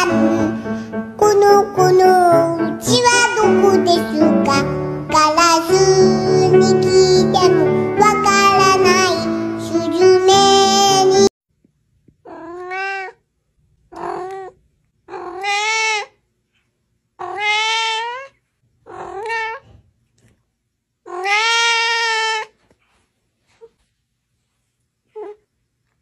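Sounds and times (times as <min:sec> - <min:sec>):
young cat meowing: 0:12.2 - 0:13.2, 0:13.9 - 0:16.2, 0:17.2 - 0:19.7, 0:21.0 - 0:22.6, 0:25.1 - 0:25.4.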